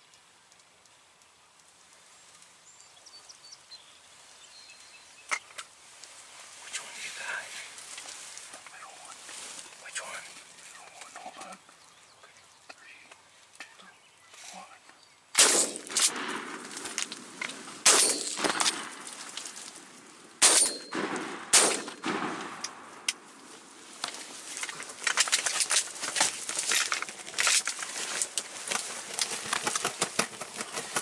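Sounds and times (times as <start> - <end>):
small clicks and rustles: 7.7 - 15.0, 23.9 - 31.0
shotgun blasts: 15.4 - 16.8, 17.8 - 19.1, 20.4 - 22.8.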